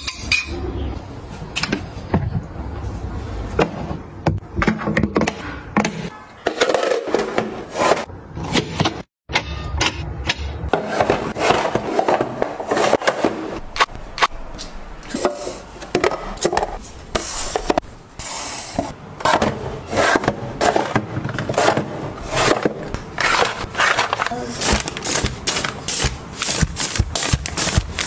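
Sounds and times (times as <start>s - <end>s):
rustling and scraping: 19.9s - 28.0s
plastic items clicking and knocking: 20.2s - 28.0s.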